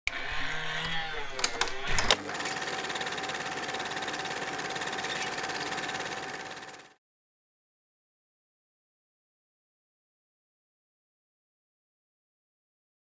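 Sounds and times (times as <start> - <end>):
fast mechanical rattle with tone: 1.9 - 7.0.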